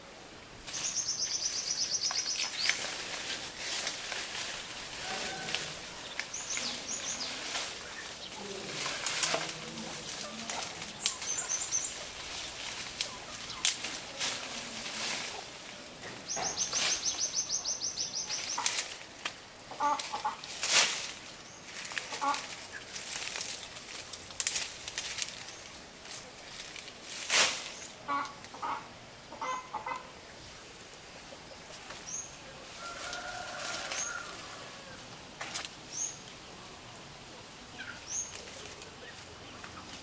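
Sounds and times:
rustling: 0.6 - 17.4, 18.2 - 28.6, 30.4 - 40.0
small bird chirping: 0.7 - 2.8, 11.0 - 12.5
chickens clucking: 0.8 - 20.6, 21.9 - 23.0, 27.9 - 30.5, 36.2 - 40.0.

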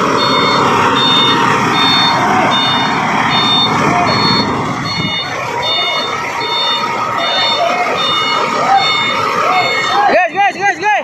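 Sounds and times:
truck reversing alarm beeping: 0.0 - 10.6
heavy truck engine running: 0.0 - 11.0.

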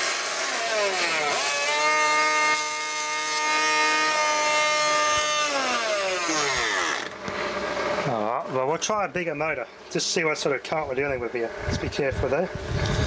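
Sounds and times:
small pump motor whining: 0.0 - 8.2.

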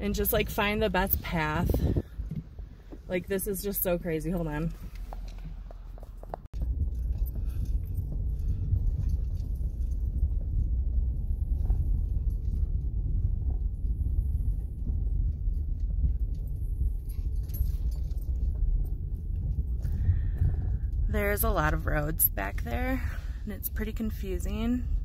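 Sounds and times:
tyres and engine rumble: 0.0 - 25.0
rattles and knocks: 4.4 - 21.8.

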